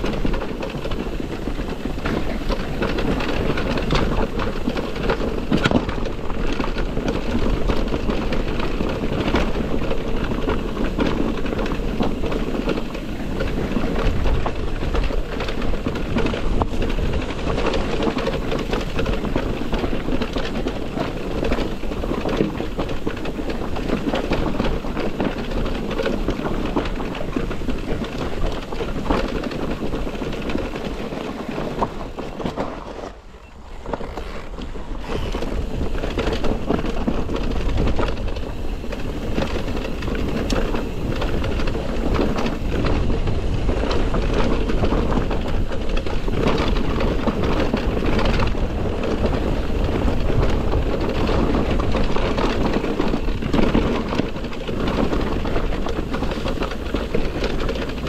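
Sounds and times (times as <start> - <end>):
bike rattling and knocking: 0.0 - 58.0
bike tyres rumbling on trail: 0.0 - 58.0.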